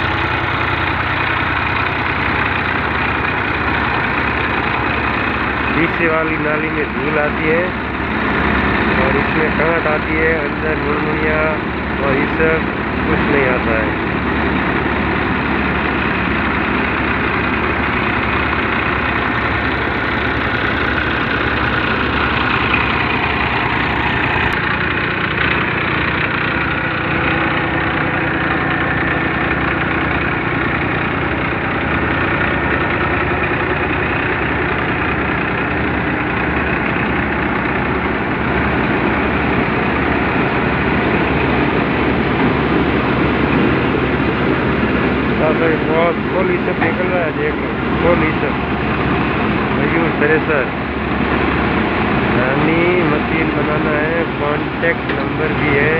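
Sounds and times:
thresher machine running: 0.0 - 55.9
tractor engine low beat: 0.0 - 55.9.

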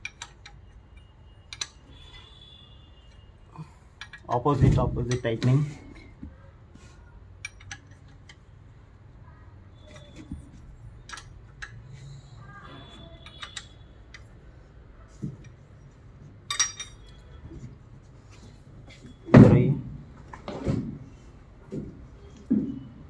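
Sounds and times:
spanner clinking on metal: 0.0 - 1.8, 4.0 - 4.4, 7.4 - 8.4, 13.2 - 14.3, 16.5 - 17.2
ringing metal clink: 16.5 - 17.2.

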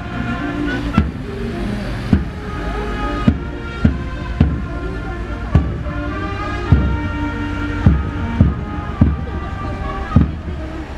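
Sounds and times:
brass band playing a march: 0.0 - 10.9
steady low rumble: 0.0 - 10.9
bass drum beats: 0.9 - 1.5, 2.1 - 2.6, 3.2 - 10.7.

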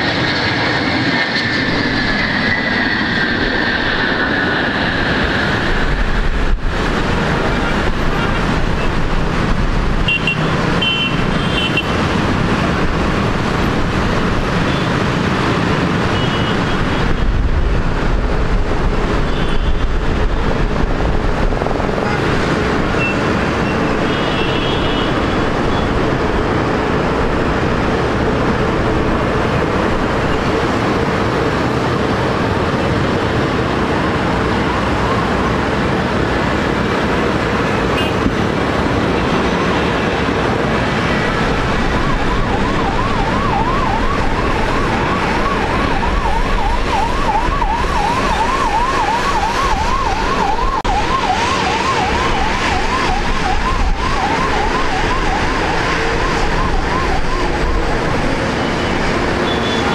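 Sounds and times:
jet engines running: 0.0 - 59.9
siren wailing and yelping: 40.9 - 59.9.

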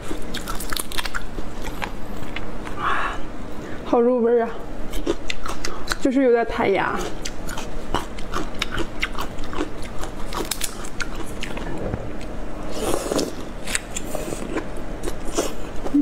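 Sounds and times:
wet biting and chewing: 0.0 - 2.8, 4.9 - 6.0, 7.0 - 16.0.

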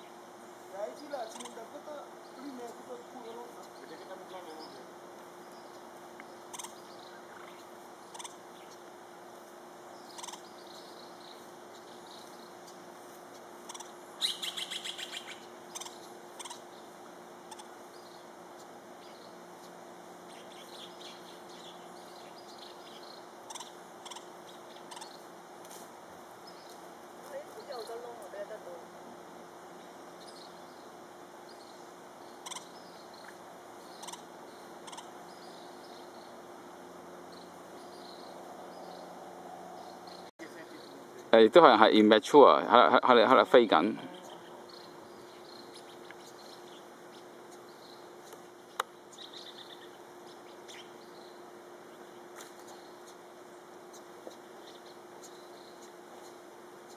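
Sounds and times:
woodpecker calling: 0.0 - 9.0, 9.7 - 25.5, 29.7 - 36.5, 43.2 - 56.9
faint steady background noise: 0.0 - 56.9.

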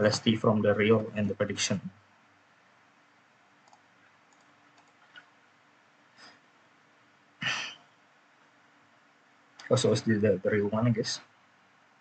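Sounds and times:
computer mouse clicks: 3.6 - 5.4.

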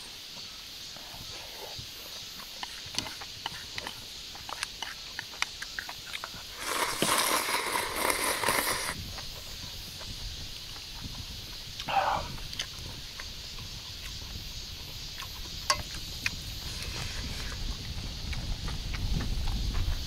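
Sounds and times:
insects buzzing: 0.0 - 20.0
eating clicks: 2.2 - 9.3, 11.6 - 14.2
noodles slurped: 2.6 - 9.0.

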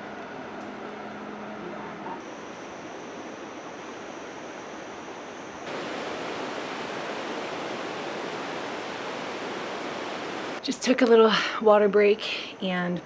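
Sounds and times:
running water rushing: 5.6 - 10.6.

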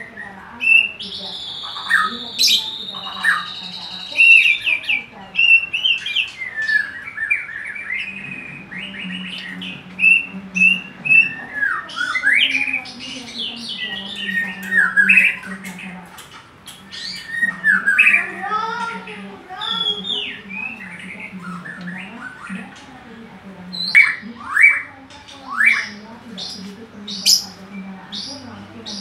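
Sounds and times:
bird singing whistles and chips: 0.7 - 18.2.

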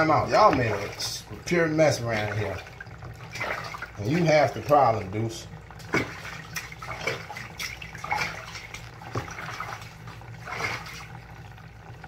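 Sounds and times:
low steady hum: 0.0 - 12.0
water splashing in bathtub: 0.0 - 12.0.

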